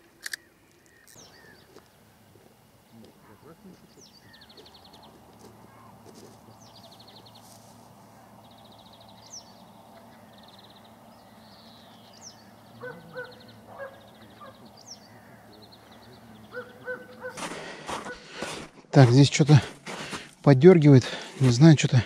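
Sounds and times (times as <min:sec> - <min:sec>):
songbird trilling: 0:00.4 - 0:02.0, 0:03.4 - 0:07.5, 0:08.3 - 0:17.4
waterfowl calling: 0:12.3 - 0:17.4.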